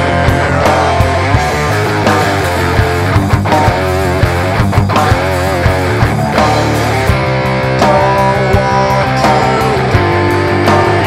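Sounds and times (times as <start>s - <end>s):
live pop band music: 0.0s - 11.0s.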